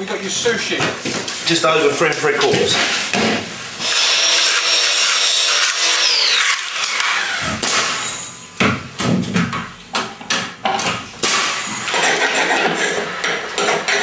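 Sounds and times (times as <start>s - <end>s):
saw cutting timber: 3.8s - 8.3s
nail gun shots: 6.4s - 8.2s, 11.2s - 12.6s.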